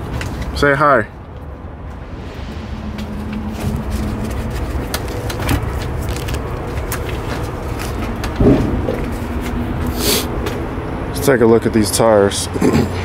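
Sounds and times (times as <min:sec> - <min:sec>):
diesel truck engine idling: 0:01.2 - 0:13.0
truck door slamming shut: 0:08.4 - 0:09.1.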